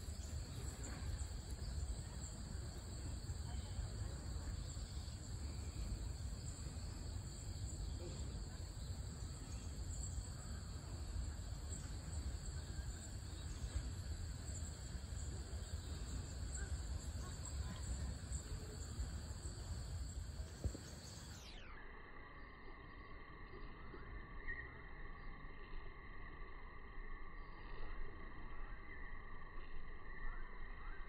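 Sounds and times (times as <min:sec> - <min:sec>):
low steady rumble: 0:00.0 - 0:21.5.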